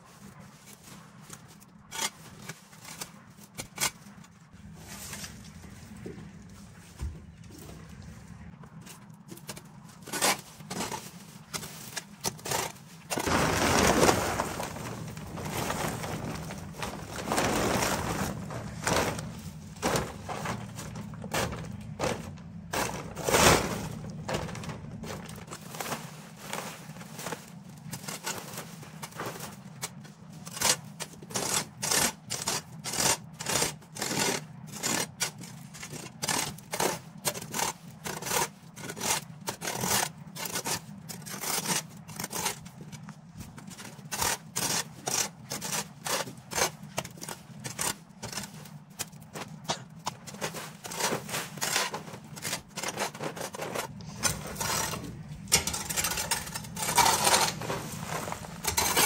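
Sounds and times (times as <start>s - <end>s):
hand tool scraping ground: 0.0s - 7.0s, 7.6s - 59.0s
steady low hum: 3.8s - 10.9s, 12.4s - 30.2s, 46.8s - 59.0s.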